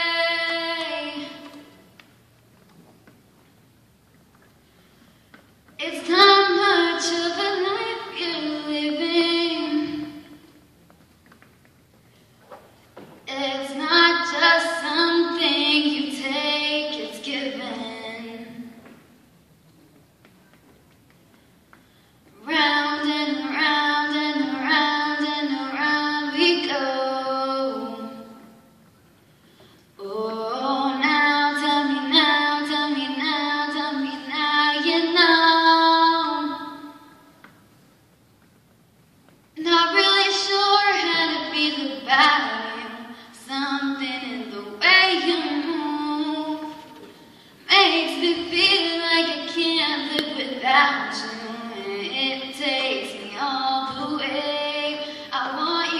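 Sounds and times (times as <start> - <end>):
girl singing unaccompanied: 0.0 - 2.0, 5.8 - 10.6, 13.1 - 19.0, 22.3 - 28.8, 30.0 - 37.4, 39.5 - 55.9.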